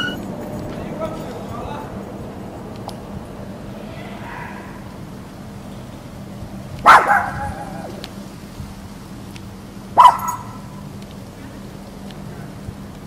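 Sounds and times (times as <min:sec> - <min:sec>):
dog barking: 0:04.1 - 0:04.8, 0:06.8 - 0:08.0, 0:10.0 - 0:10.7.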